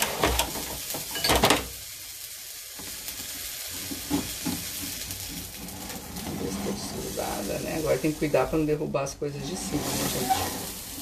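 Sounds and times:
clatter of dishes: 0:00.0 - 0:01.7
food sizzling in a frying pan: 0:00.0 - 0:11.0.

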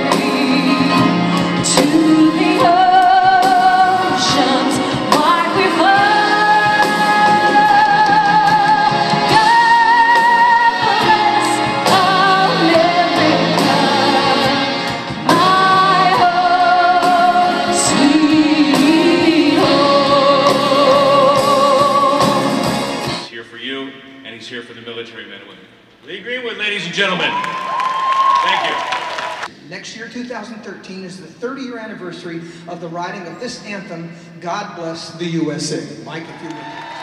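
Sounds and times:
woman singing into a microphone: 0:00.0 - 0:22.6
instrumental backing: 0:00.0 - 0:23.4.

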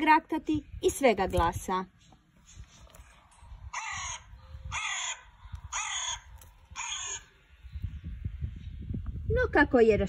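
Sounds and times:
crow cawing: 0:03.7 - 0:07.4.

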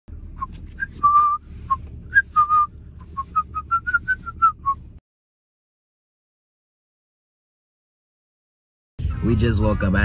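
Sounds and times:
car cabin hum: 0:00.1 - 0:05.0
man whistling a tune: 0:00.4 - 0:04.8.

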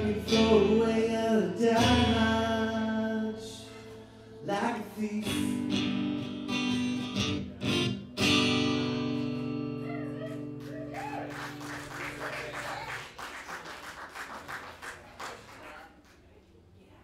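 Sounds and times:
acoustic guitar chord ringing: 0:00.0 - 0:10.6
audience shouts: 0:09.9 - 0:11.4
audience applause: 0:10.2 - 0:16.2.

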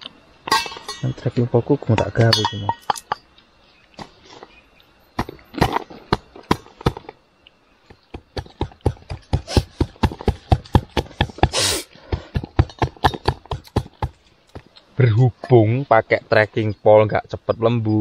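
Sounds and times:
pole pounding knocks: 0:07.9 - 0:14.2.

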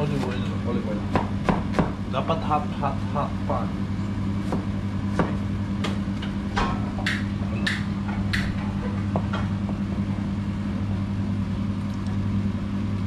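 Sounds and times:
steady low hum: 0:00.0 - 0:13.0
knife chopping on plastic board: 0:01.1 - 0:02.0, 0:04.4 - 0:06.0.

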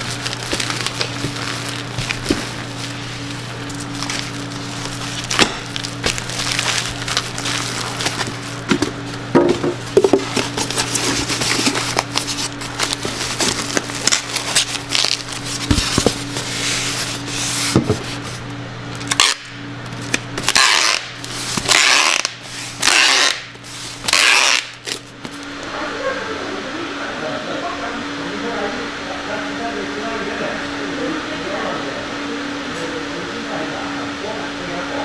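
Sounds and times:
packing tape pulled off dispenser: 0:00.0 - 0:09.2, 0:10.0 - 0:18.4, 0:19.0 - 0:25.5
foil bag crinkling and rustling: 0:00.0 - 0:18.4, 0:19.8 - 0:22.8
styrofoam box handling: 0:00.0 - 0:18.4.

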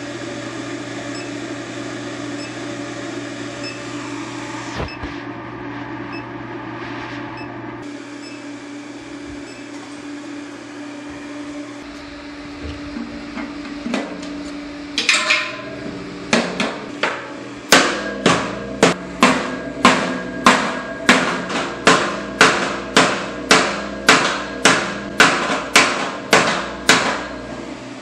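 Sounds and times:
hammer striking hot rivet: 0:16.3 - 0:27.3.

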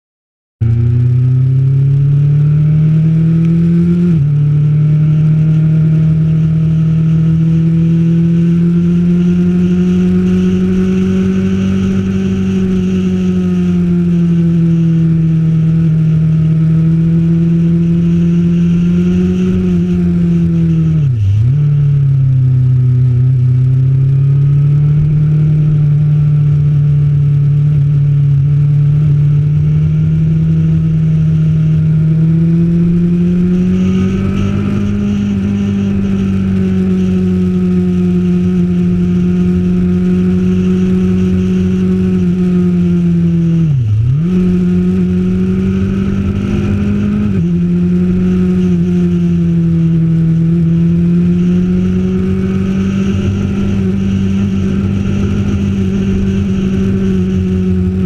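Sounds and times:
motorcycle engine running: 0:00.6 - 0:58.0.

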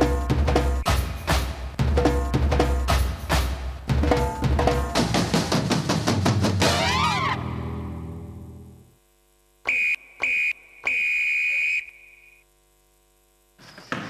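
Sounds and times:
electronic buzzer beeps: 0:09.6 - 0:12.5.

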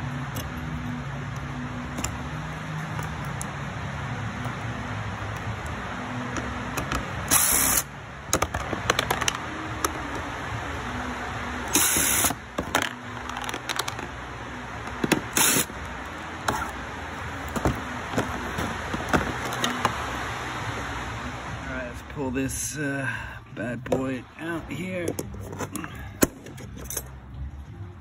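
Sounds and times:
clicks and knocks of handling parts: 0:00.2 - 0:03.6, 0:04.4 - 0:07.2, 0:08.3 - 0:10.3, 0:11.7 - 0:14.2, 0:14.8 - 0:16.8, 0:17.4 - 0:20.1.

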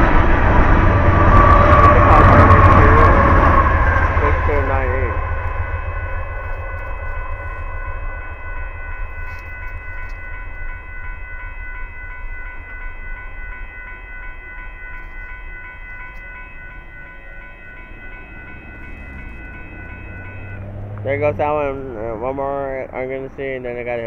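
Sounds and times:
low train rumble: 0:00.0 - 0:24.0
railroad crossing bell dinging: 0:00.0 - 0:24.0.

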